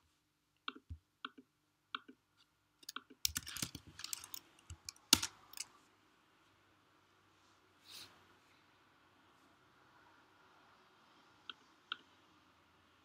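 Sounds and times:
computer keyboard typing: 2.8 - 5.6.

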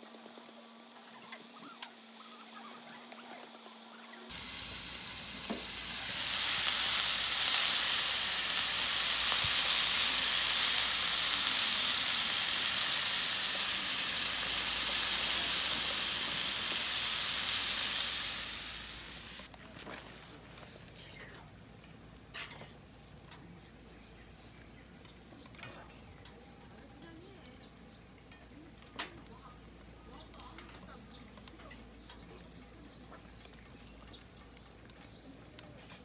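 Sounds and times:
meat sizzling in a frying pan: 3.9 - 19.5.

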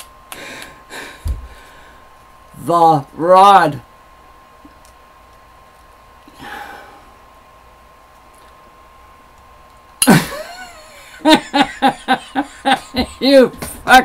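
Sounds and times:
faint steady whine: 0.0 - 14.0
man breathing out: 0.3 - 2.1, 6.3 - 7.2
man laughing: 10.0 - 13.5.

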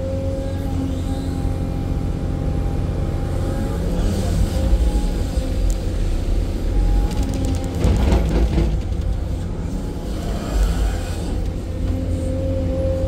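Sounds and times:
excavator diesel engine with whine: 0.0 - 13.0
rattle of knocks: 7.4 - 9.6.

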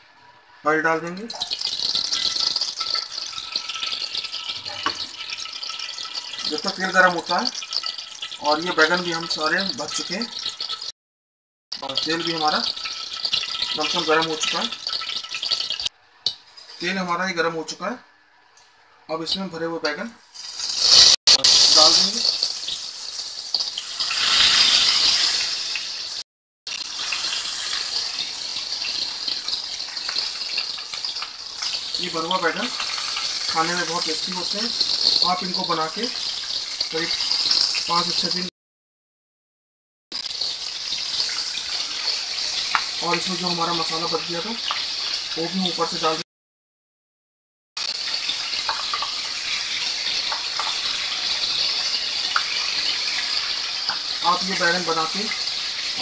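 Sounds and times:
hot oil sizzling: 0.0 - 11.0, 11.7 - 38.5, 40.1 - 46.2, 47.8 - 56.0.

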